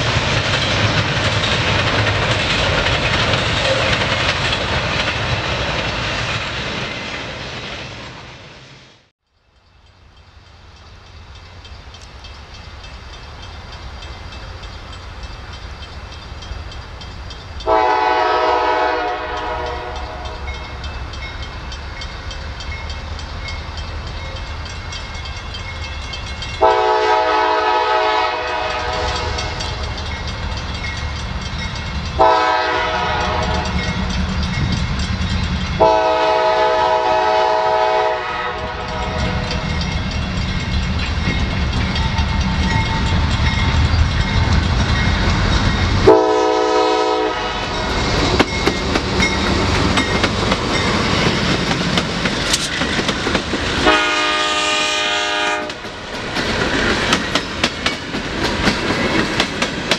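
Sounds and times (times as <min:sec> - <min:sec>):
locomotive horn: 0:17.6 - 0:20.6, 0:26.6 - 0:29.6, 0:32.2 - 0:34.0, 0:35.8 - 0:39.6, 0:46.0 - 0:47.9, 0:53.8 - 0:55.8.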